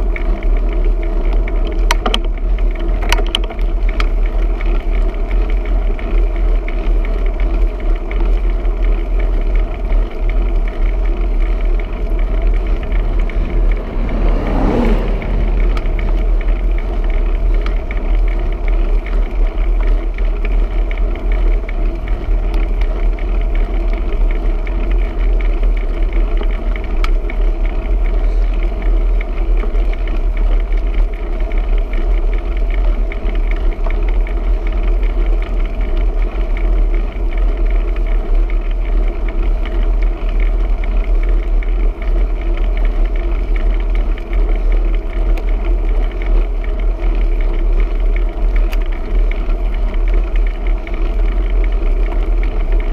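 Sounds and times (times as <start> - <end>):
road noise: 0.0 - 52.9
wind rumbling on microphone: 8.6 - 39.4
vehicle passing by: 10.6 - 18.1.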